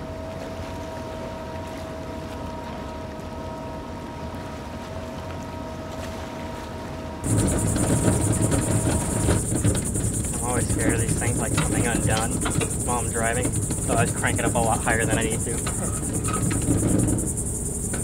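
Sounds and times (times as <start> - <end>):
outboard boat engine rumble: 0.0 - 18.0
held tones: 7.2 - 18.0.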